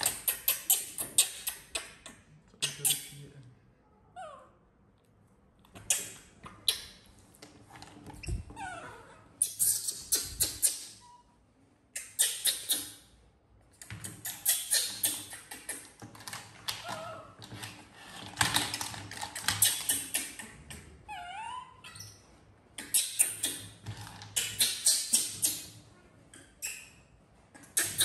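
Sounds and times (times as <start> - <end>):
baby monkey squeaks: 0.0 - 1.9, 8.2 - 11.4, 12.0 - 13.1, 14.1 - 15.9, 21.1 - 22.2, 22.8 - 25.8, 26.4 - 28.0.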